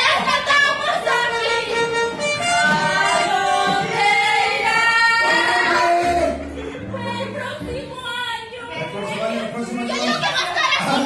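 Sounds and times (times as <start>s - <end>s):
women singing into microphones: 0.0s - 5.8s
loud backing music: 0.0s - 11.0s.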